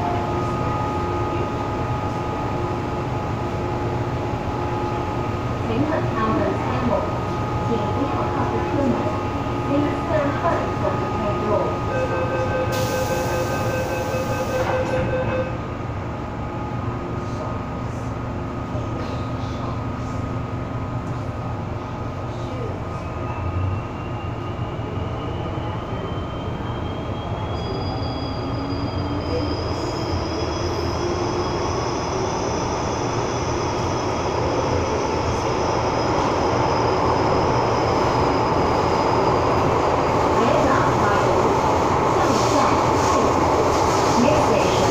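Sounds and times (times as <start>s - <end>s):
train running noise: 0.0s - 44.9s
door-closing warning tone: 11.9s - 15.6s.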